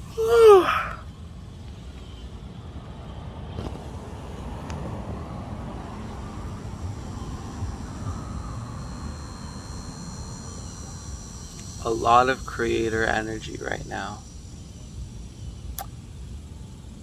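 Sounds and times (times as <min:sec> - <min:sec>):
low outdoor background rumble: 0:00.0 - 0:17.0.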